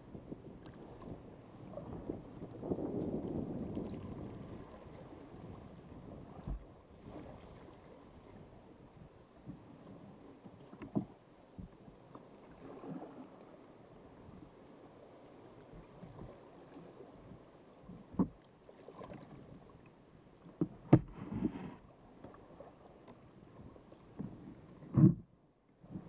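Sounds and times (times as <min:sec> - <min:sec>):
paddle strokes through water: 0:00.0 - 0:26.0.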